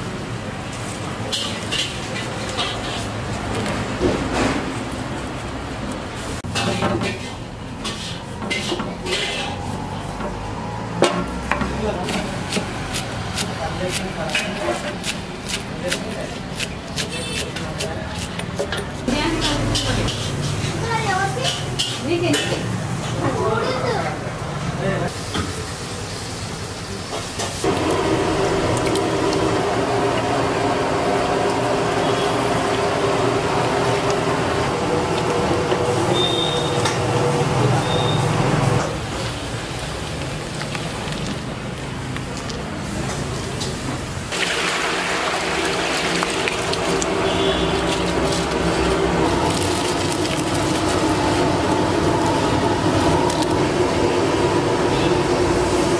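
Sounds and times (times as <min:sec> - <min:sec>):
kitchen drone and hiss: 0:00.0 - 0:55.9.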